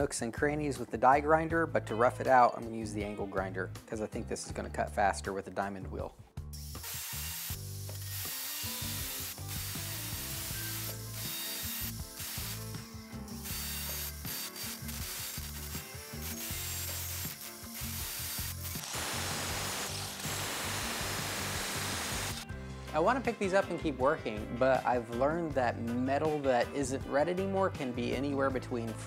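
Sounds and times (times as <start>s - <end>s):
angle grinder cutting steel: 6.6s - 22.4s.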